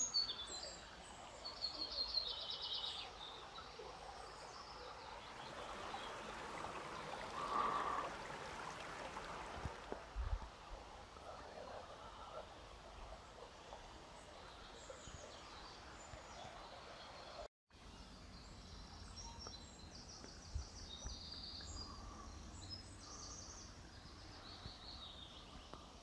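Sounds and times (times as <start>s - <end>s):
stream flowing: 0.0s - 17.5s
songbirds chirping: 0.0s - 26.0s.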